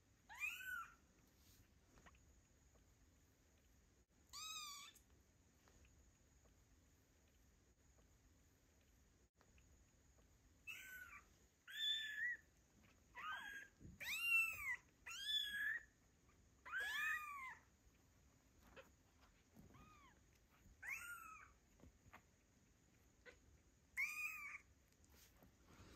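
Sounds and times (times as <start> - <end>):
kittens meowing: 10.7 - 15.9, 16.6 - 17.7, 19.6 - 21.6, 23.2 - 24.7.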